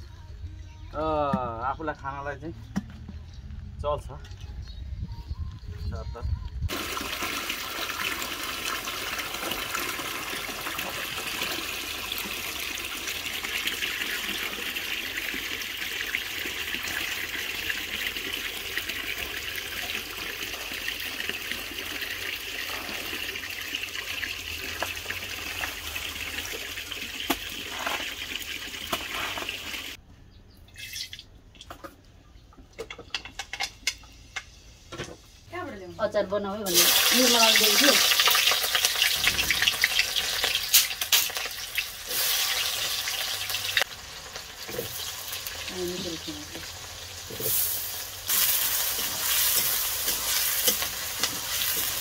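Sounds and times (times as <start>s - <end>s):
water splashing into metal pot: 6.7s - 29.8s, 36.7s - 43.8s.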